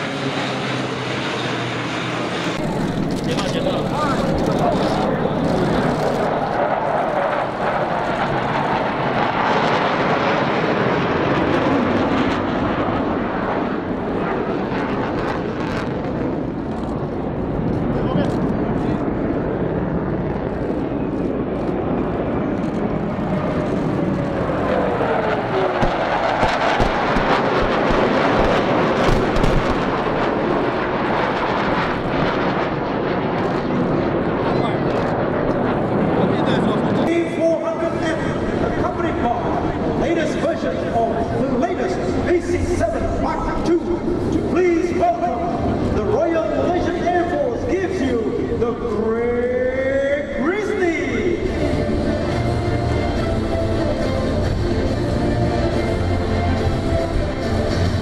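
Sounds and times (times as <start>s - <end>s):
aircraft engines roaring overhead: 0.0s - 58.0s
pyrotechnic booms and crackles: 25.5s - 36.3s.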